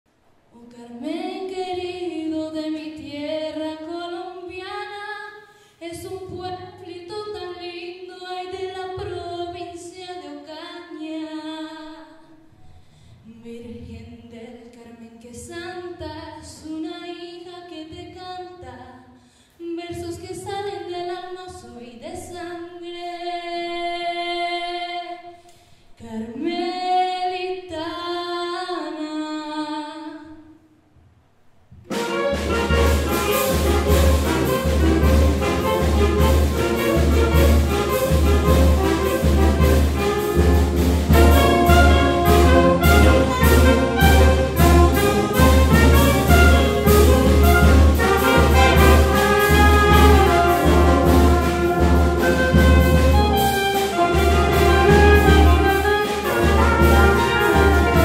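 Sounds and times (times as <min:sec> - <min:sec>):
woman singing unaccompanied: 0:00.6 - 0:12.2, 0:13.3 - 0:19.0, 0:19.6 - 0:25.2, 0:26.0 - 0:30.4.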